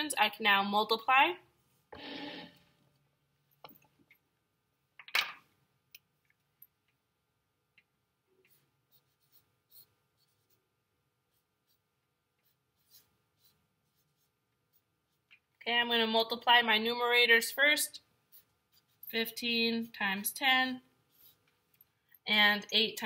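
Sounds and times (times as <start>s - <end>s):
marker writing on paper: 8.4s - 10.6s, 11.3s - 15.4s, 18.3s - 19.4s, 21.1s - 22.0s.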